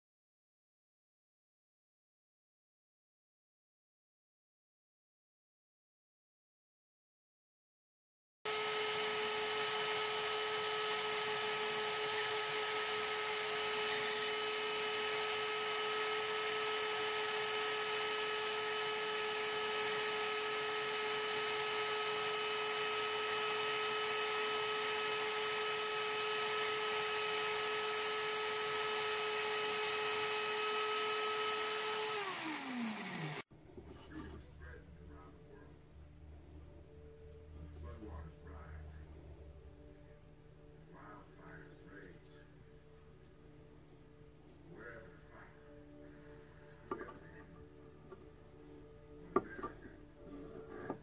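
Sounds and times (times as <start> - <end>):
drill press whining: 8.5 - 33.4
motor winding down: 8.5 - 33.4.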